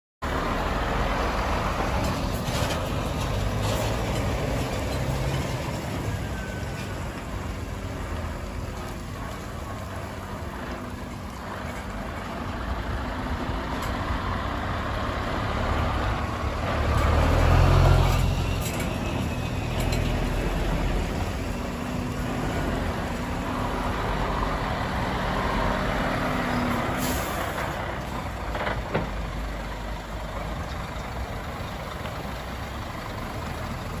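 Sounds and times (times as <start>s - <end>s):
trucks driving past: 0.2s - 34.0s
air brake hiss: 26.9s - 27.6s.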